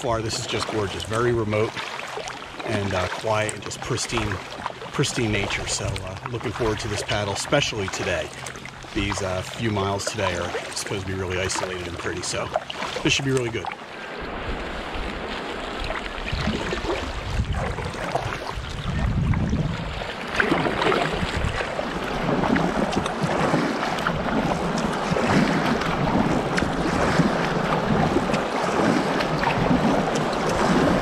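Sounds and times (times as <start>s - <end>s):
water splashing around kayak: 0.0s - 31.0s
wind buffeting microphone: 13.1s - 31.0s.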